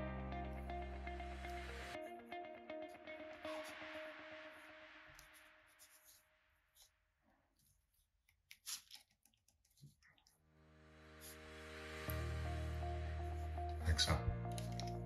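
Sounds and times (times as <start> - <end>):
background music: 0.0 - 5.2, 10.6 - 15.0.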